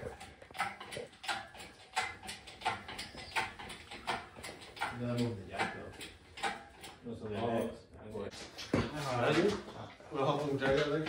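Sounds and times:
engine hoist mechanical strokes: 0:00.0 - 0:07.0.

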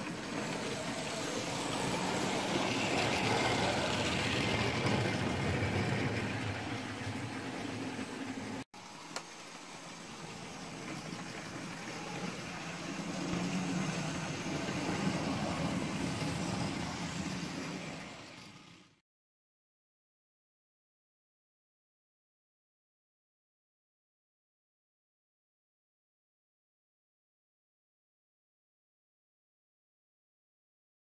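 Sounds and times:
model train motor whirr: 0:00.0 - 0:19.0
wheels rolling on rails: 0:00.0 - 0:19.0.

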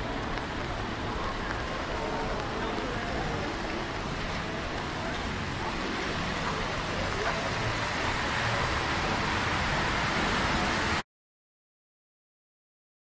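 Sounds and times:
traffic on wet road: 0:00.0 - 0:11.0.

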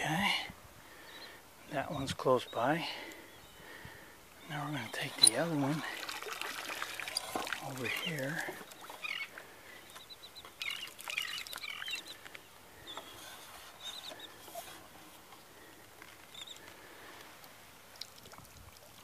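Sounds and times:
small birds chirping: 0:00.9 - 0:17.2.

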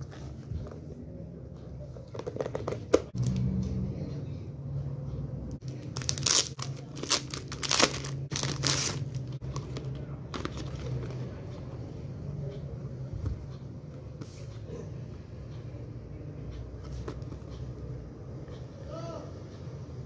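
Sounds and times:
plastic and cardboard crinkling: 0:05.6 - 0:11.2.

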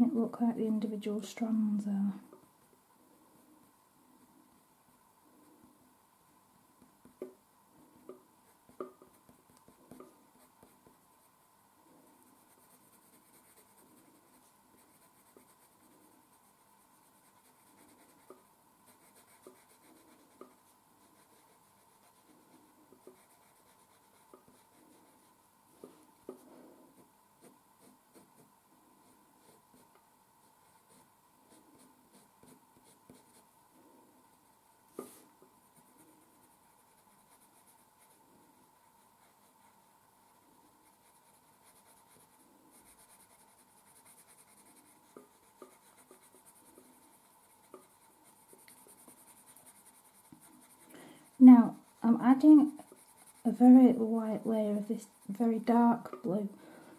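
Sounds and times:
pencil scratching on paper: 0:06.8 - 0:33.5, 0:34.9 - 0:56.4.

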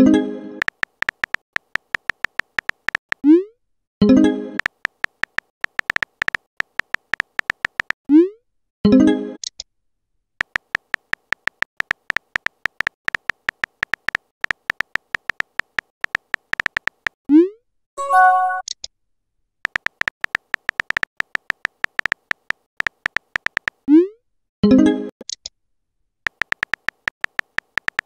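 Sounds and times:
keyboard typing beep-clicks: 0:00.6 - 0:03.3, 0:04.0 - 0:08.0, 0:10.4 - 0:17.2, 0:19.7 - 0:23.8, 0:26.3 - 0:28.0.

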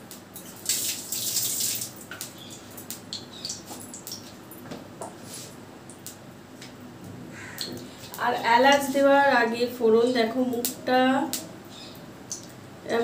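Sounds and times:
oil sizzling and spitting: 0:00.4 - 0:04.4.

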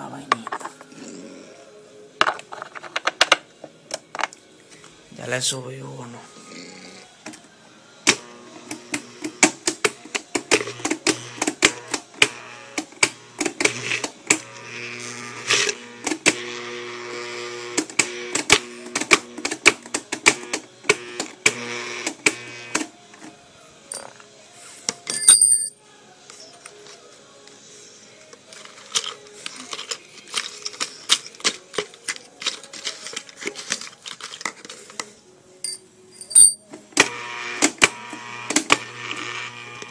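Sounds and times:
blender motor hum: 0:10.5 - 0:19.4, 0:20.2 - 0:22.8, 0:37.0 - 0:39.9.

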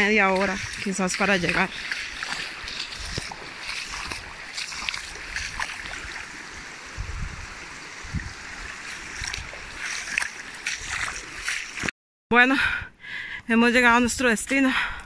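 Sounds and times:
boots splashing through water: 0:00.0 - 0:11.9
shallow water rushing: 0:00.0 - 0:11.9.

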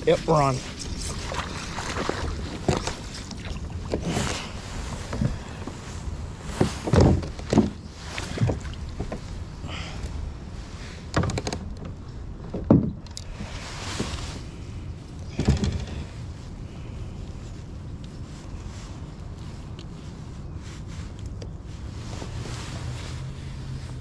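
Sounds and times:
knocks and bumps against a kayak: 0:01.3 - 0:05.6, 0:06.4 - 0:09.3, 0:11.1 - 0:13.1, 0:15.3 - 0:16.1.

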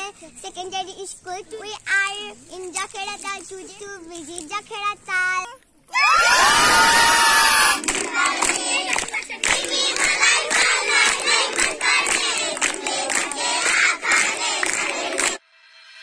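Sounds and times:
children cheering: 0:05.9 - 0:09.4, 0:11.0 - 0:15.4
children clapping: 0:06.4 - 0:15.4
children singing: 0:07.8 - 0:15.4.

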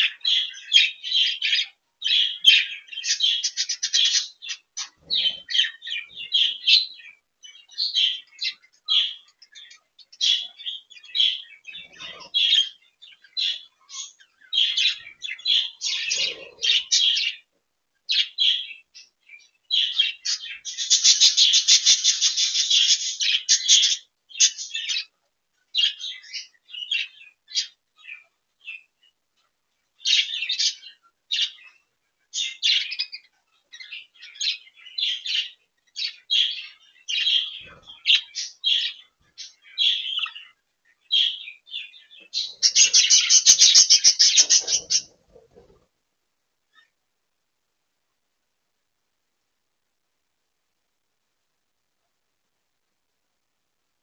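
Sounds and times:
budgerigars chirping: 0:00.0 - 0:17.5, 0:18.1 - 0:25.1, 0:32.4 - 0:45.8.

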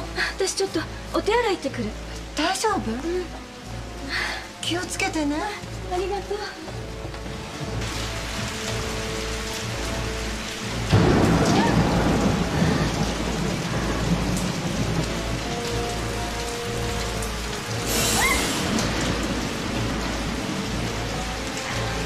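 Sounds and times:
steady rain: 0:00.0 - 0:22.0
thunder cracking and rumbling: 0:10.7 - 0:22.0.

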